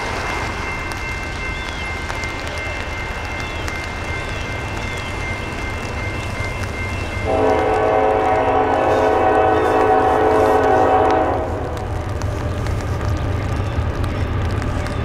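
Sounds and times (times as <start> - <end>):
locomotive air horn chord: 7.2 - 11.8.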